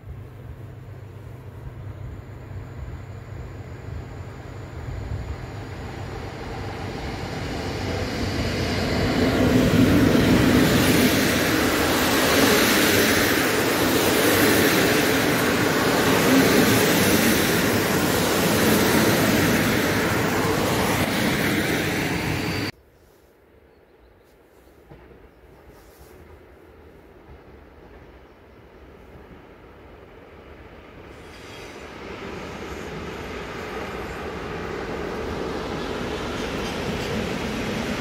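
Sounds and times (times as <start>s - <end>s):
train rolling past: 0.0s - 22.8s, 24.9s - 38.0s.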